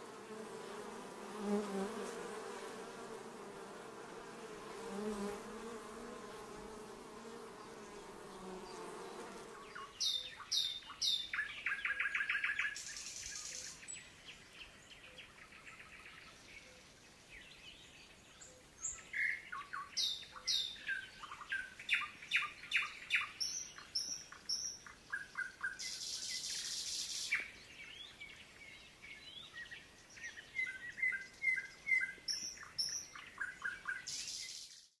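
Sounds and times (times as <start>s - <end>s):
honeybee buzzing: 0.0s - 9.8s
songbirds singing: 6.8s - 34.9s.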